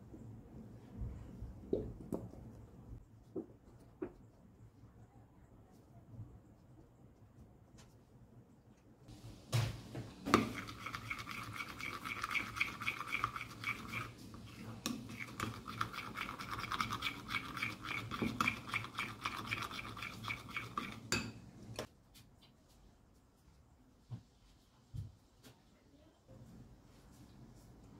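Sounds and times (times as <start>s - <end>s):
stirring scraping in glass bowl: 10.3s - 21.4s.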